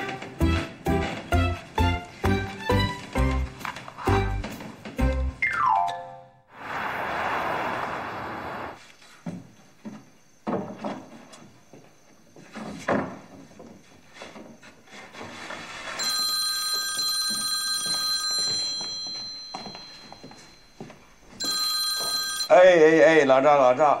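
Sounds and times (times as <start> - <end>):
telephone ringing: 16.0 - 22.9.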